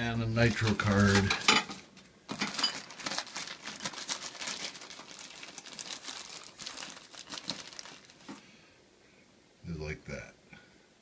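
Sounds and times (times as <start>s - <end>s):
plastic bag crinkling: 0.2s - 1.7s, 2.3s - 8.5s.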